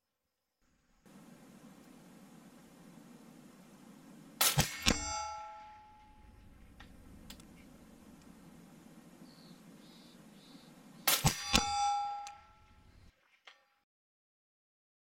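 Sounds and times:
steel target clanging: 4.4 - 8.5, 11.0 - 13.1
suppressed rifle shots: 4.4 - 8.7, 11.0 - 13.0.

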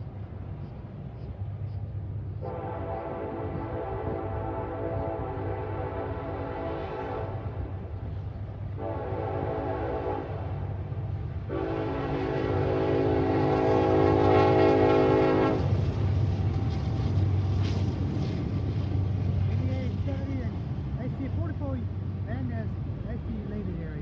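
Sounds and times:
diesel engines rumbling: 0.0 - 24.0
locomotive air horn blasts: 2.4 - 7.6, 8.7 - 10.8, 11.5 - 15.8.

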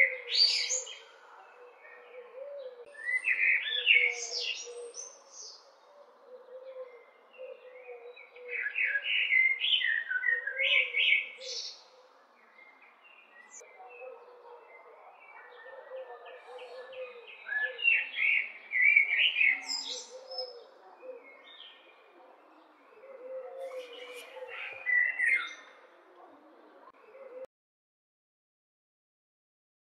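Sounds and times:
blackbird calling: 15.4 - 26.4.

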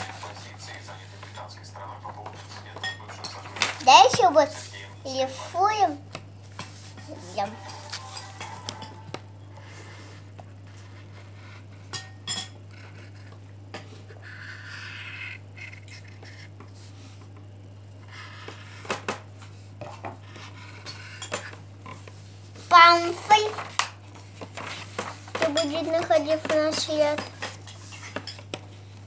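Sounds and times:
pencil scratching on paper: 12.7 - 13.4, 14.0 - 17.0, 19.8 - 21.5.

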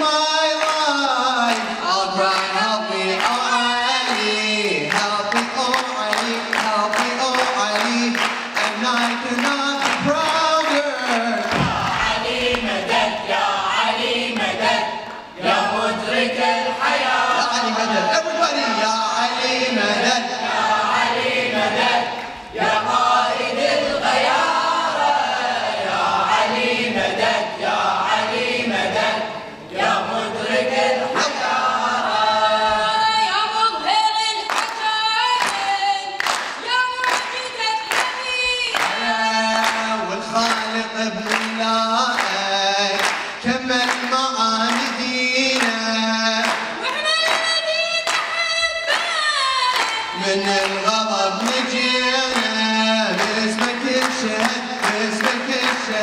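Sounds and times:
young men singing a cappella: 0.0 - 33.9, 38.5 - 46.9, 50.0 - 56.0
steady handclaps: 0.4 - 17.1, 34.4 - 56.0.

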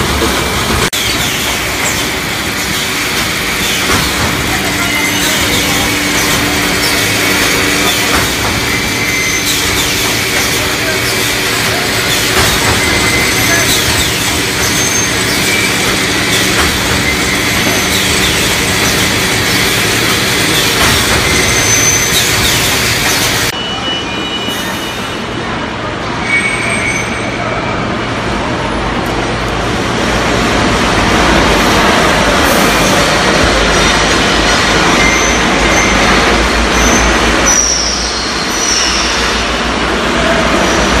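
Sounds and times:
machinery mechanical din: 0.0 - 23.5
high machine squeals: 1.0 - 25.3, 26.2 - 27.8, 34.8 - 39.6.

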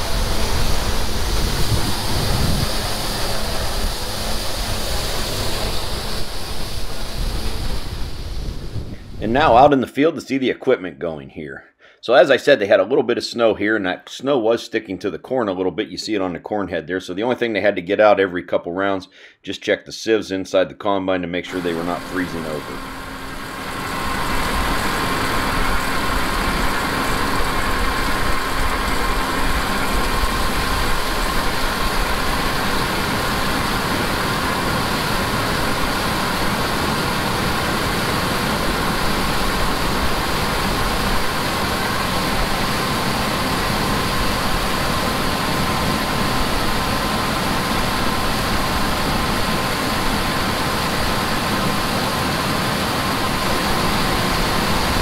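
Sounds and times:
harvest machinery engine drone: 0.0 - 9.6, 21.5 - 55.0
faint steady whine: 0.0 - 9.8, 21.5 - 55.0.

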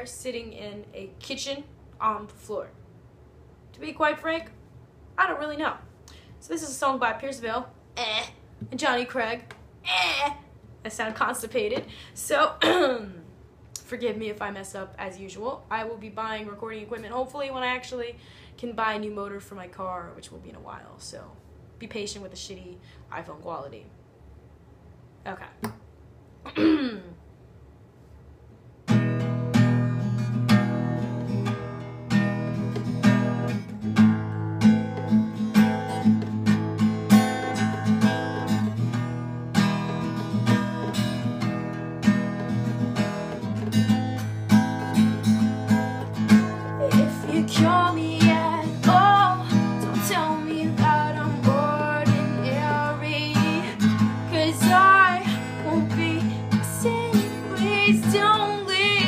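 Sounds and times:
acoustic guitar strumming: 28.9 - 59.0
woman singing: 46.8 - 59.0.

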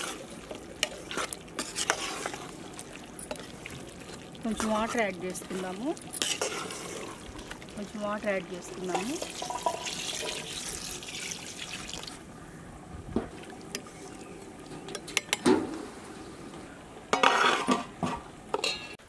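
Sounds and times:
ladle stirring and knocking pot: 0.0 - 7.9, 8.6 - 10.5
water pouring into pot: 0.0 - 12.2.

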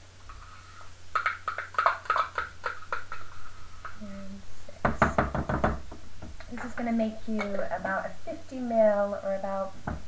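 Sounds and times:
teaspoon tapping on container: 1.2 - 4.0.

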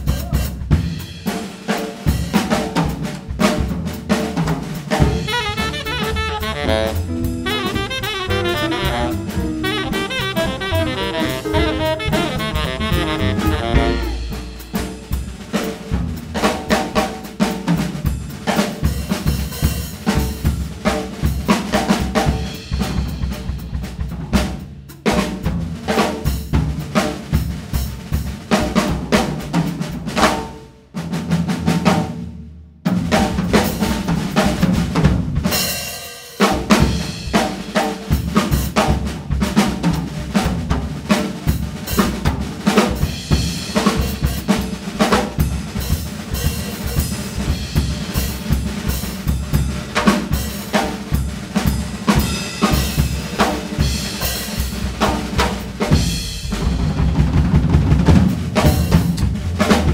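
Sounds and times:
jazz drum kit solo: 0.0 - 59.9
cymbal crash: 14.0 - 16.0.

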